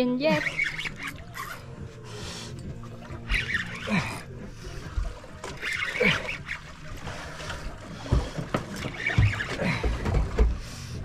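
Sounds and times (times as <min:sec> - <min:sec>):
water lapping against boat hull: 0:00.3 - 0:11.0.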